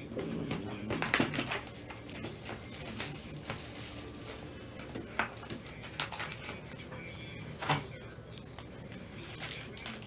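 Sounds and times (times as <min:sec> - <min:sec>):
cards and plastic holders rustling: 0:00.9 - 0:07.9.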